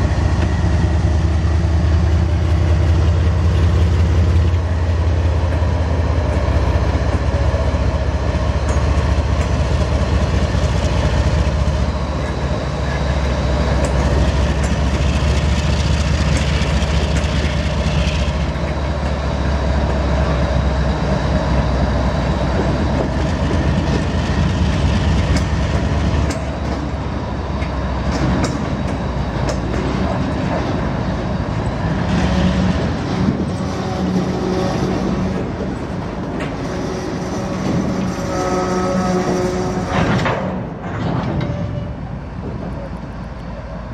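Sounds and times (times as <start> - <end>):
diesel locomotive engine rumble: 0.0 - 43.9
freight cars rolling on rails: 0.0 - 43.9
wheels clicking over rail joints: 8.2 - 20.4, 21.5 - 43.6.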